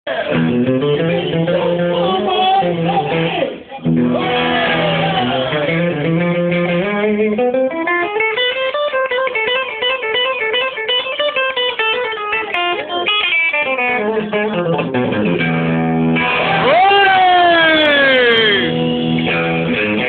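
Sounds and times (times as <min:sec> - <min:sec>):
electric guitar: 0:00.1 - 0:20.0
rock band playing live: 0:00.2 - 0:20.0.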